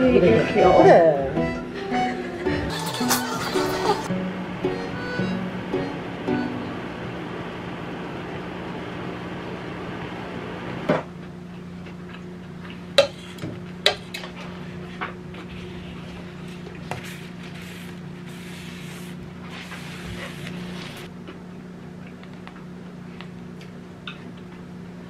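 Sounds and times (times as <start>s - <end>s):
steady low hum: 0.0s - 25.0s
soft scraping of frosting: 14.5s - 21.1s.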